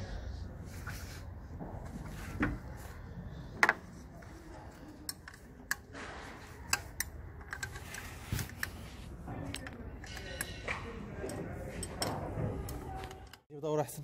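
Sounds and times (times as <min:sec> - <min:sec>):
metallic clicks and knocks: 0:05.0 - 0:13.5.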